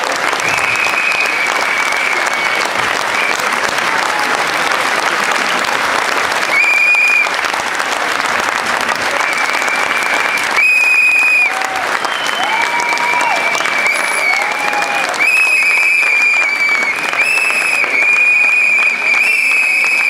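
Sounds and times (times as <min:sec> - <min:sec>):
audience applauding: 0:00.0 - 0:20.0
shrill whistles: 0:00.4 - 0:03.4, 0:06.5 - 0:07.3, 0:09.2 - 0:20.0.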